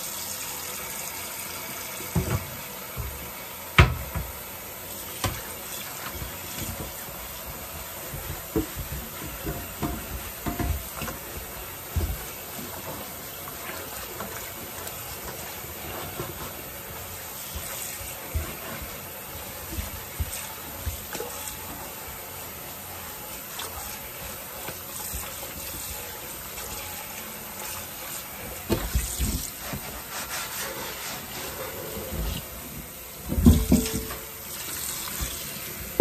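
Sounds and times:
running water hiss: 0:00.0 - 0:36.0
dishes and utensils clattering: 0:33.3 - 0:34.3.

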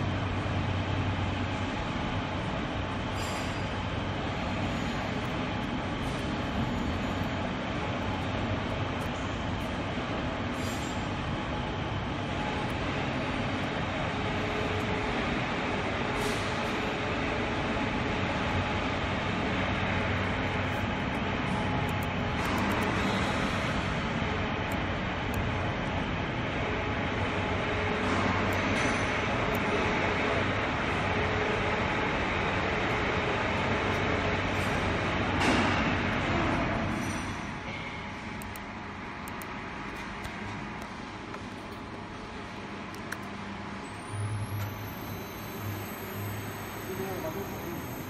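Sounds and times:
test bench motor and pump humming: 0:37.7 - 0:48.0.

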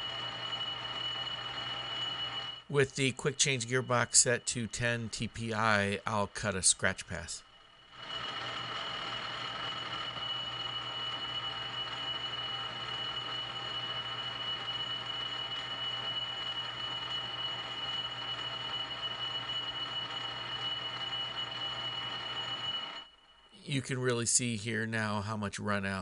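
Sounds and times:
lathe gears whining: 0:00.0 - 0:02.8, 0:07.5 - 0:23.3.

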